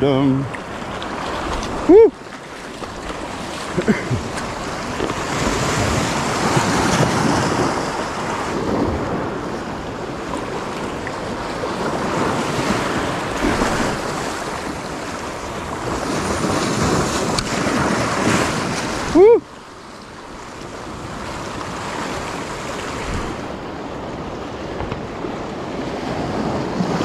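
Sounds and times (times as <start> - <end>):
surf breaking on rocks: 0.0 - 19.4
wind buffeting microphone: 0.0 - 19.4, 20.6 - 27.0.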